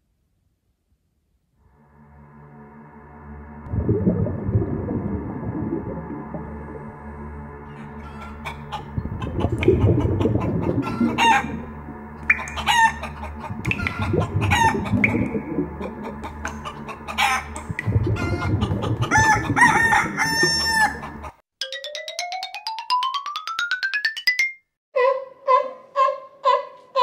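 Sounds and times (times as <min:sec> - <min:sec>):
rising tone: 0:03.2 - 0:08.0, 0:13.3 - 0:16.6
low steady hum: 0:03.6 - 0:08.0, 0:08.8 - 0:20.7
rooster crowing: 0:07.7 - 0:08.8, 0:10.8 - 0:11.5, 0:12.6 - 0:14.8, 0:19.1 - 0:21.2
chickens clucking: 0:07.7 - 0:21.4.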